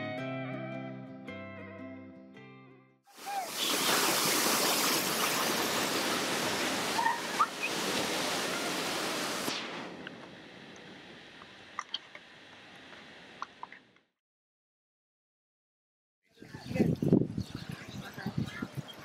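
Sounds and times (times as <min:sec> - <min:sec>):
seawater surging over rocks: 0:03.2 - 0:09.5
water lapping: 0:03.2 - 0:09.5.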